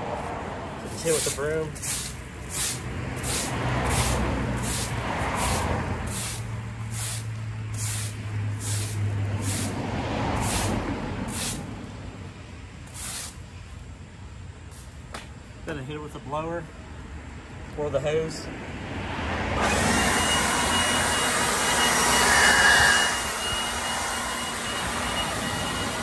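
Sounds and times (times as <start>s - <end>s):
broom scrubbing asphalt: 0.0s - 11.9s, 12.8s - 13.7s, 14.6s - 15.0s
passing road traffic: 0.0s - 26.0s.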